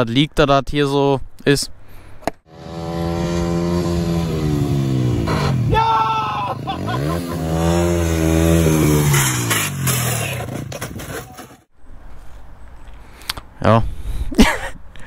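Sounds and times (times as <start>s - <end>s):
motorcycle engine revving: 2.5s - 11.7s.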